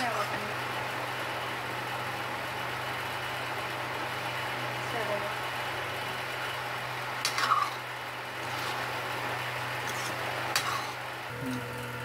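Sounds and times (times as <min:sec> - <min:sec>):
steady low hum: 0:00.0 - 0:12.0
metal spoon scraping metal pan: 0:07.2 - 0:07.8, 0:09.8 - 0:11.0.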